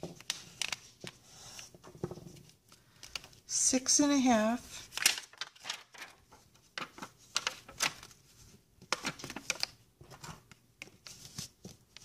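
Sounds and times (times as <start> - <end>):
plastic sheet crinkling: 4.9 - 8.2.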